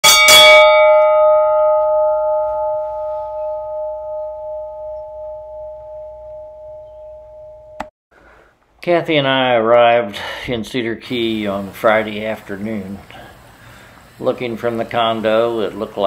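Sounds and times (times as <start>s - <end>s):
struck bell ringing: 0.0s - 7.8s.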